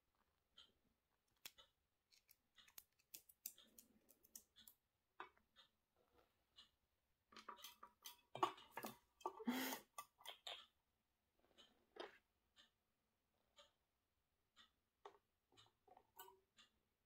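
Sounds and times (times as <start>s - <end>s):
parrot claws and beak tapping: 1.3s - 5.4s.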